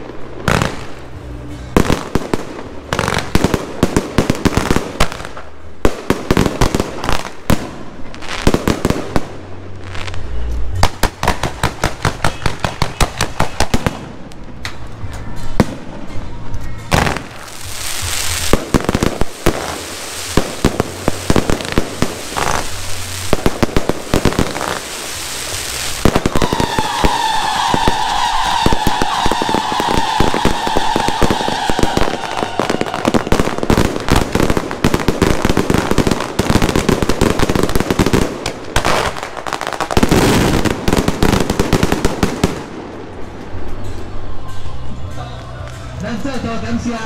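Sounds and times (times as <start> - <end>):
steady firework hiss: 17.3 - 34.0
wavering firework whistle: 25.2 - 34.2.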